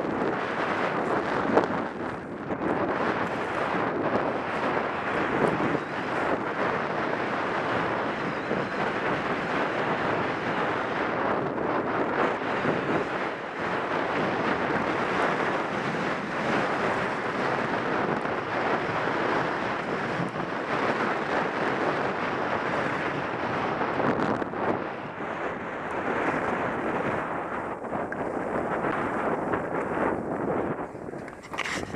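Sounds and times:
wind rushing over microphone: 0:00.0 - 0:31.9
skis sliding over snow: 0:00.2 - 0:10.8, 0:26.0 - 0:31.9.

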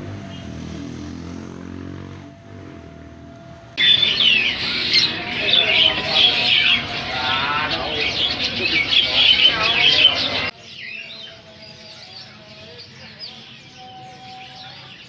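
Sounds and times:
songbirds chirping and trilling: 0:00.0 - 0:15.0.

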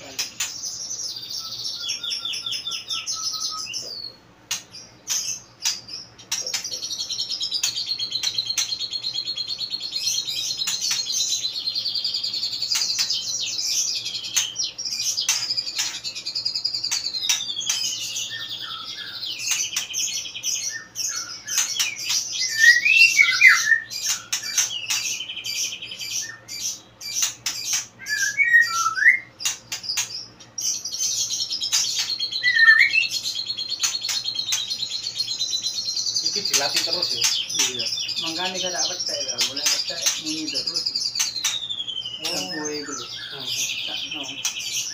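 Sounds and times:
bird whistled phrases: 0:00.0 - 0:04.2, 0:20.6 - 0:26.5, 0:28.0 - 0:29.3, 0:32.0 - 0:44.9
bird singing fast trills: 0:00.0 - 0:44.9
bird sharp clicks: 0:04.5 - 0:06.8, 0:07.5 - 0:08.8, 0:10.6 - 0:11.2, 0:12.6 - 0:13.3, 0:14.2 - 0:16.2, 0:16.8 - 0:18.0, 0:19.4 - 0:20.0, 0:23.5 - 0:25.2, 0:29.4 - 0:30.2, 0:31.6 - 0:34.9, 0:41.1 - 0:42.4, 0:44.4 - 0:44.6.

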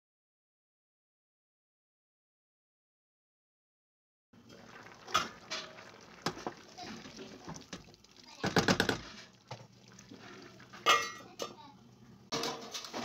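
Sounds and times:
wooden spoon stirring in pot: 0:04.4 - 0:11.7.

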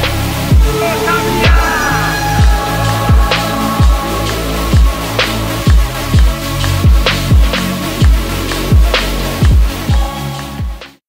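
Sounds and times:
electronic dance music: 0:00.1 - 0:10.7.

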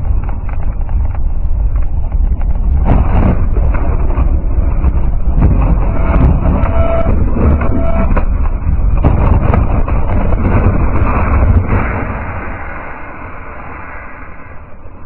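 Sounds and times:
knocks and rattles: 0:00.0 - 0:12.0
loud low rumble of skidding car: 0:02.9 - 0:11.1.

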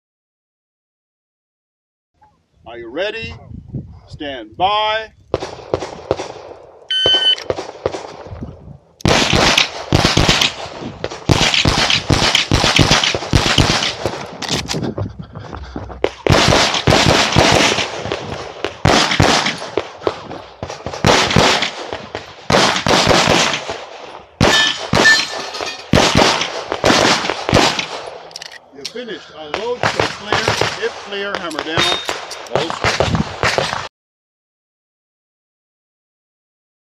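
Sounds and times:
pistol shots: 0:05.3 - 0:08.3, 0:09.0 - 0:14.7, 0:16.1 - 0:28.3, 0:29.5 - 0:33.9.

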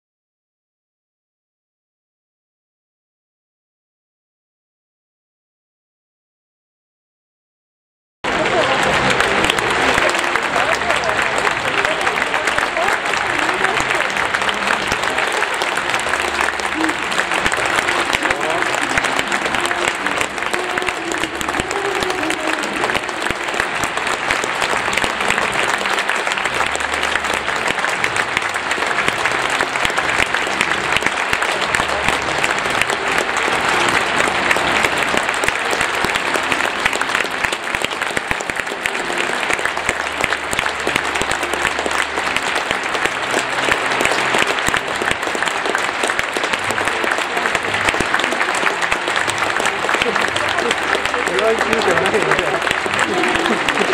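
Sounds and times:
large crowd applauding: 0:08.2 - 0:53.9.

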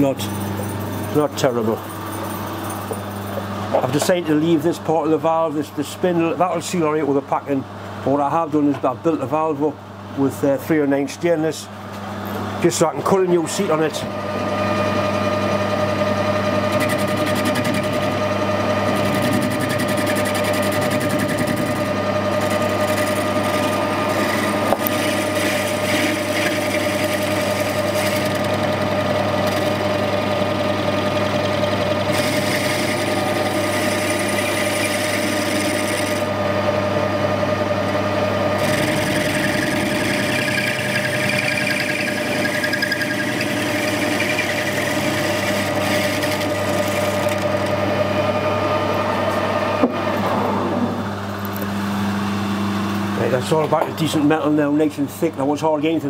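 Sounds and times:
metal lathe hum and whine: 0:00.0 - 0:56.0.

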